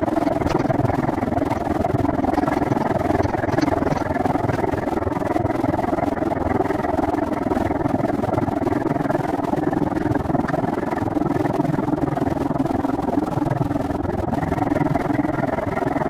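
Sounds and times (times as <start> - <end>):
wind on microphone: 0.0 - 16.0
bicycle tyres rolling: 0.4 - 5.0.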